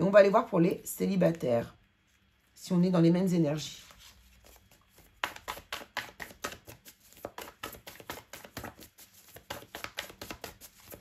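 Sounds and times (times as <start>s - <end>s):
cards being shuffled: 3.8s - 11.0s.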